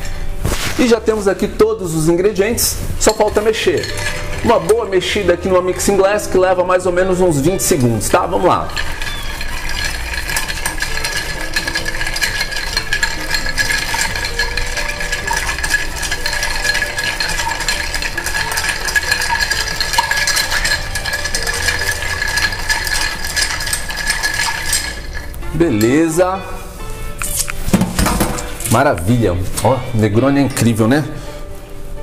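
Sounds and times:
ice cubes clinking in glass: 3.0 - 6.2, 7.4 - 26.2.

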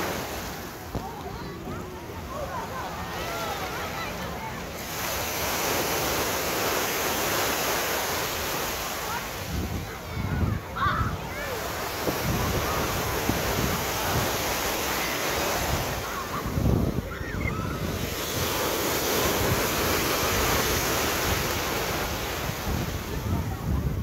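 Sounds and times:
ocean surf washing ashore: 0.0 - 24.0
wind buffeting microphone: 9.1 - 24.0.

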